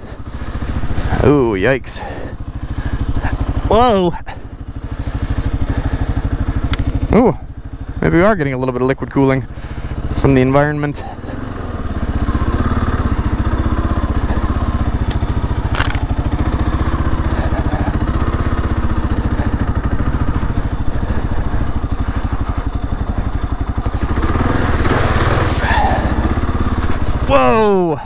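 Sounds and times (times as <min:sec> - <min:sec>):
motorcycle engine running: 0:00.0 - 0:28.0
bike splashing through mud puddle: 0:23.8 - 0:27.6.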